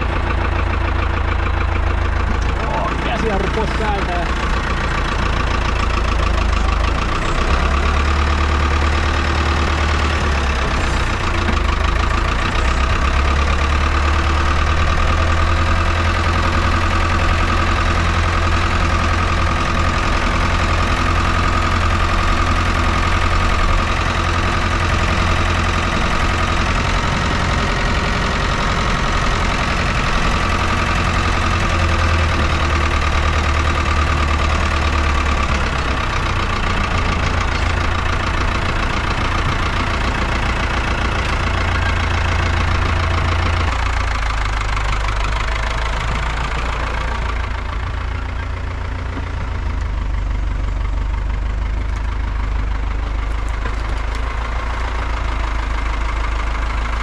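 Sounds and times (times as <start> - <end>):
tractor diesel engine running: 0.0 - 57.0.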